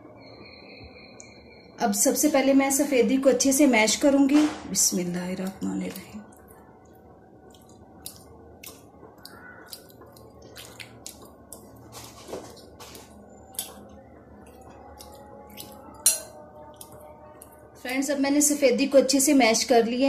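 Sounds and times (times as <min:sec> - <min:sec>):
egg squishing: 0:05.9 - 0:16.1.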